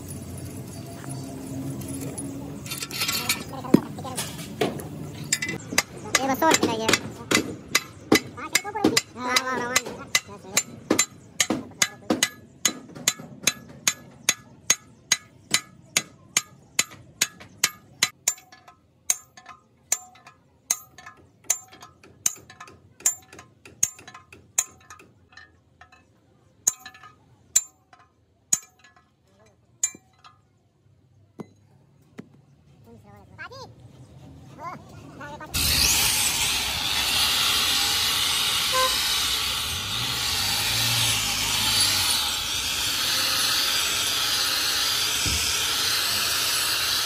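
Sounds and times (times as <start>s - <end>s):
hammer clinking on metal: 29.8s - 30.4s.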